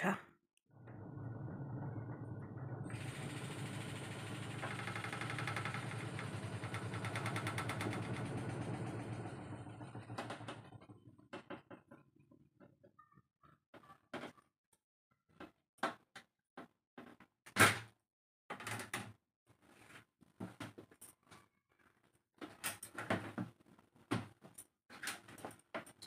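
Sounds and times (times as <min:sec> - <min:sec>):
washing machine rumbling: 0:00.7 - 0:11.8.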